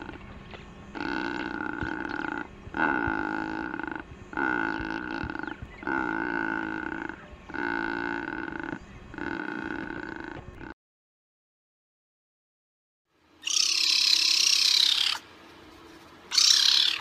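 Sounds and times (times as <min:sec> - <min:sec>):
bird drawn-out calls: 0:00.9 - 0:10.4, 0:13.4 - 0:15.3, 0:16.3 - 0:17.0.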